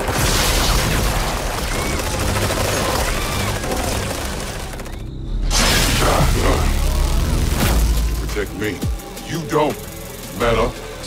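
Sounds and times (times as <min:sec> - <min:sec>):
electric crackling with zaps: 0:00.0 - 0:04.8.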